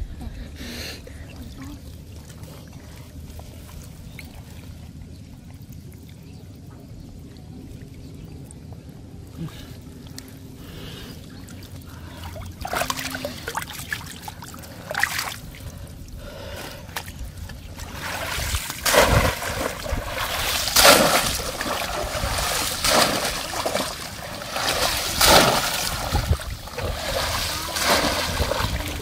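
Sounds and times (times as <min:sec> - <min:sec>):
water splashing and sloshing: 0:01.1 - 0:29.0
hands groping through water: 0:16.7 - 0:29.0.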